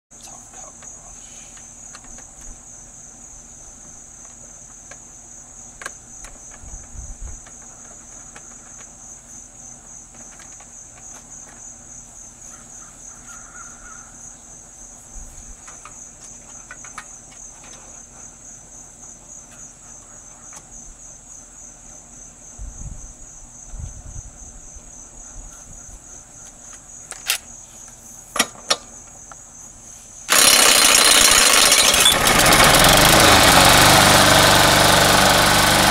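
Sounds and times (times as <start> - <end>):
insects chirping chorus: 0.2 - 32.3
impact gun spinning: 30.3 - 33.0
lawn mower engine running: 30.3 - 35.9.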